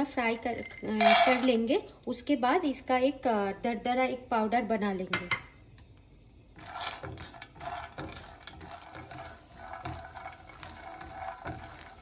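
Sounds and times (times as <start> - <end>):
peanuts sizzling in oil: 6.5 - 12.0
spatula stirring: 6.5 - 12.0.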